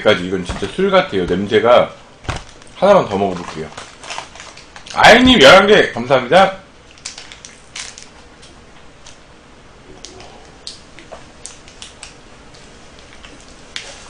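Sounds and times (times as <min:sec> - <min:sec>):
plastic wrapper crinkling and tearing: 0:02.3 - 0:05.3, 0:06.8 - 0:08.2.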